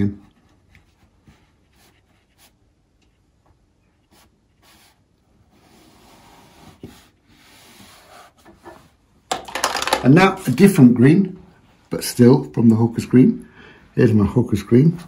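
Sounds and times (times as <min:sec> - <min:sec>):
brush swishing on paper: 0:00.8 - 0:02.8, 0:03.9 - 0:08.9.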